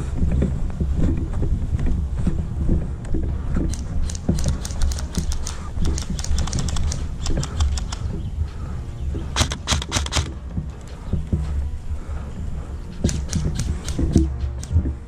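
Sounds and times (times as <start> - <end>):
running footsteps on grass: 0.0 - 15.0
wind buffeting microphone: 0.0 - 15.0
sharp clicks: 3.0 - 8.4, 9.2 - 11.4, 13.0 - 15.0.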